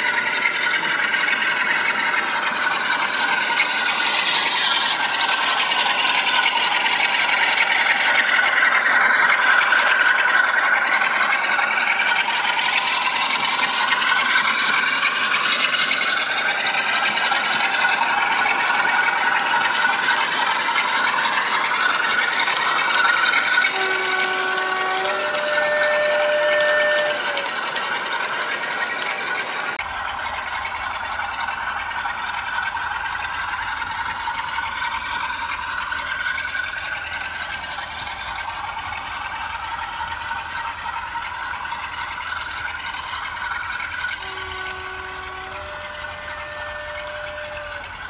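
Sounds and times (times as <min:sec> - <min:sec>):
model train rattling over track: 0:00.0 - 0:48.0
train motor whine: 0:00.0 - 0:48.0.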